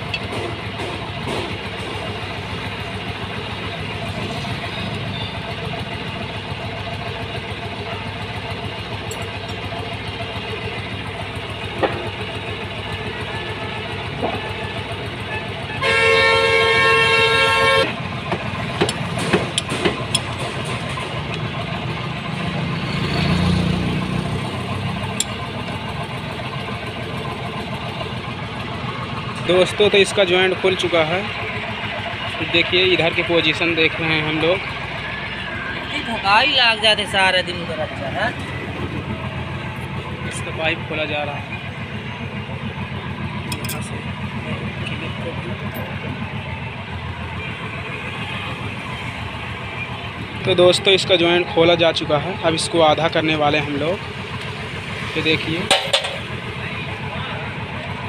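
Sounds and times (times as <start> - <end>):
background engine noise: 0.0 - 58.0
vehicle horn: 15.3 - 18.0
spanners clinking on metal: 18.8 - 20.8, 43.4 - 44.0.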